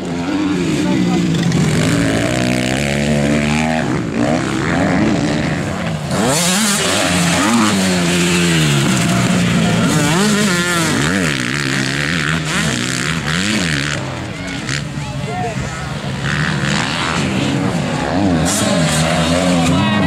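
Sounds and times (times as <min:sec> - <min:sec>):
motocross bike engines revving: 0:00.0 - 0:20.0.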